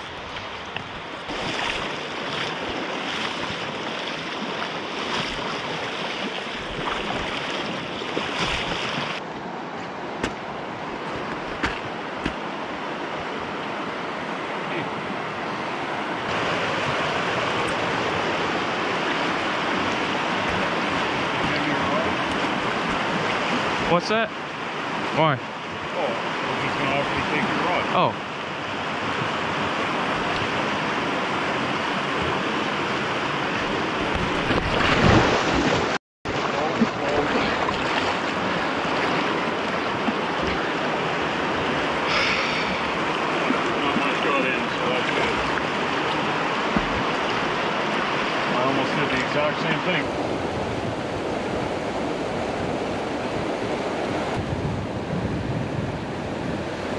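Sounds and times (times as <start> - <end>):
stream rushing over rocks: 0.0 - 54.4.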